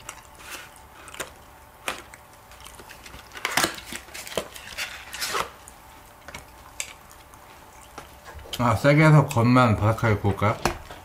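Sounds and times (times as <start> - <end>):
packaging crinkling: 0.0 - 7.4.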